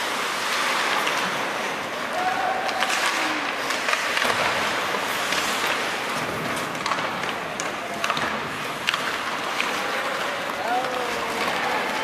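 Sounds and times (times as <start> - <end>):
rink crowd hubbub: 0.0 - 12.0
skates scraping on ice: 0.0 - 12.0
sticks and puck clacking: 0.0 - 12.0
faint shout: 2.1 - 3.6.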